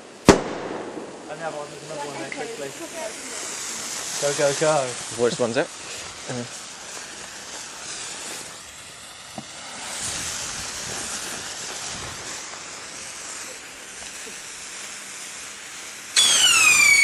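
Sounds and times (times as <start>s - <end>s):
firework hissing and sizzling: 0.0s - 17.0s
firework whistle falling in pitch: 16.2s - 17.0s.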